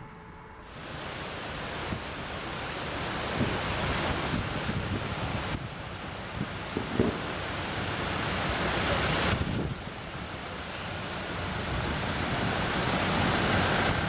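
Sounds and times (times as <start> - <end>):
wind buffeting microphone: 3.2 - 8.6, 9.2 - 10.0.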